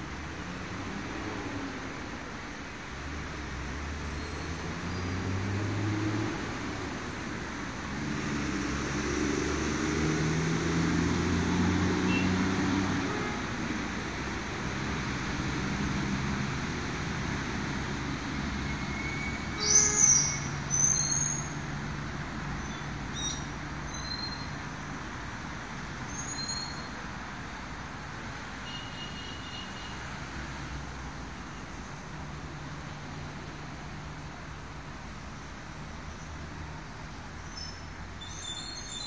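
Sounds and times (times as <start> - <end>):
traffic engine rumble: 0.0 - 39.0
bird chirps: 37.4 - 39.0.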